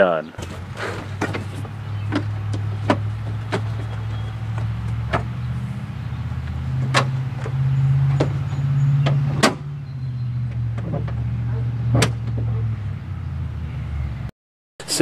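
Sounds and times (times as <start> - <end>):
low engine drone: 0.3 - 14.3.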